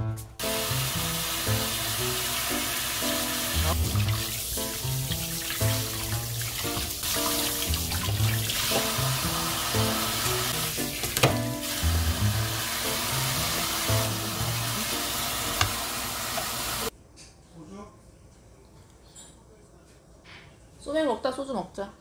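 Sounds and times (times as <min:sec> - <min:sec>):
background music: 0:00.0 - 0:16.9
faucet spray into metal sink: 0:00.4 - 0:16.9.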